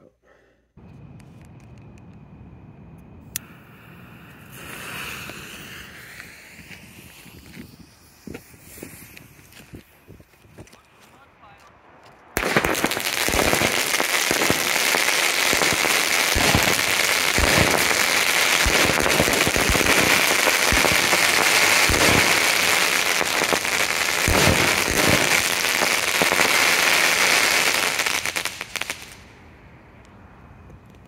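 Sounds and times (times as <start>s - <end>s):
fireworks crackling: 3.2s - 11.6s, 12.2s - 29.4s
fireworks launch thumps: 4.3s - 9.8s.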